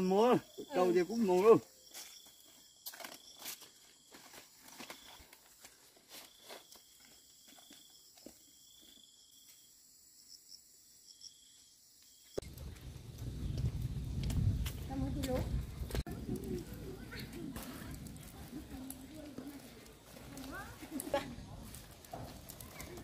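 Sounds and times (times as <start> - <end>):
insects trilling: 0.0 - 14.2.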